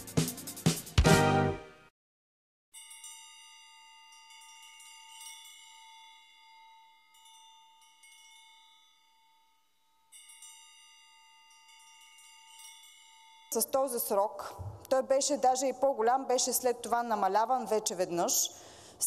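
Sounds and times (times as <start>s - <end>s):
chime-like ringing tones: 2.8s - 14.2s.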